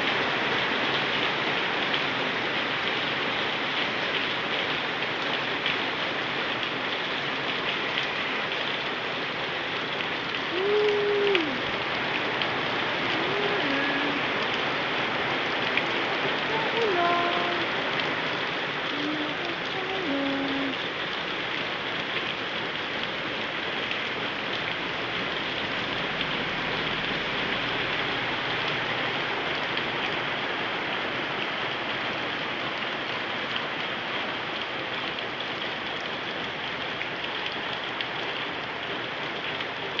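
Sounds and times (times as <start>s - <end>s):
heavy rain on pavement: 0.0s - 40.0s.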